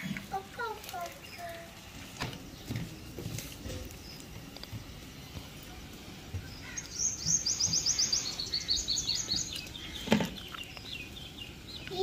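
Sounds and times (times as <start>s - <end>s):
bird singing: 1.0s - 1.7s, 6.3s - 12.0s.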